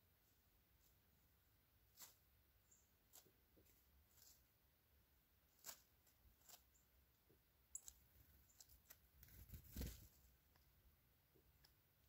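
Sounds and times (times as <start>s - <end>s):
soft rustle: 0.1s - 4.6s, 7.7s - 10.7s.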